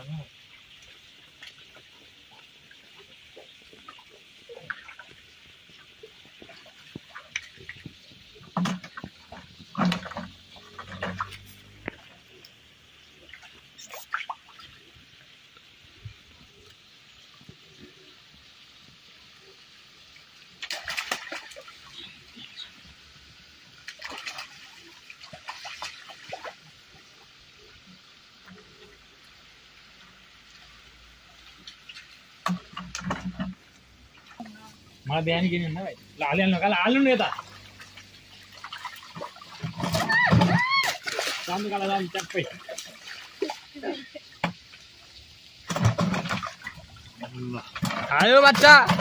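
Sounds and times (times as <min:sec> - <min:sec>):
stream water trickling: 0:00.0 - 0:49.0
fish thrashing and splashing: 0:03.4 - 0:12.4, 0:20.6 - 0:22.2, 0:23.8 - 0:26.9, 0:37.2 - 0:44.7, 0:45.4 - 0:49.0.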